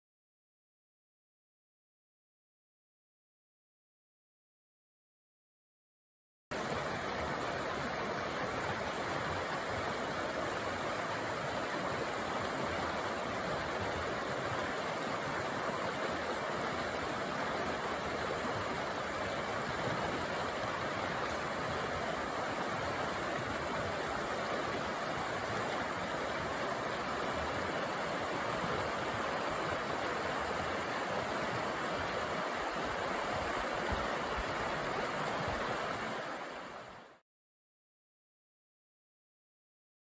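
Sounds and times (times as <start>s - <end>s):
stream flowing over rocks: 6.5s - 37.2s.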